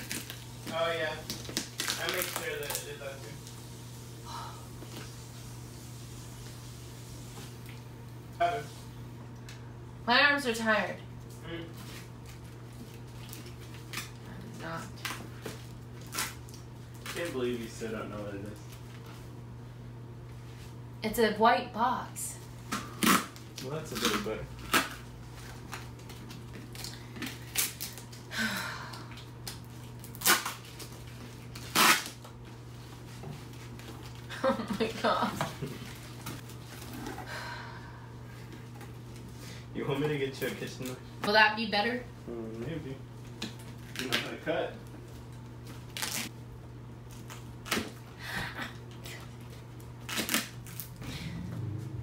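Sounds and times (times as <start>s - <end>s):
packing tape ripping: 0.0s - 3.1s, 15.0s - 17.4s, 22.7s - 28.2s, 29.4s - 32.4s, 43.5s - 44.4s, 45.7s - 46.3s, 47.1s - 48.0s, 50.0s - 51.0s
wrapping rustling: 0.0s - 3.8s
steady low hum: 0.0s - 52.0s.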